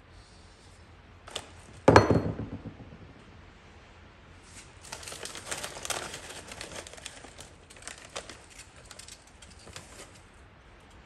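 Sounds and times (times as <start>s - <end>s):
plastic chip bag crinkling: 4.8s - 10.4s.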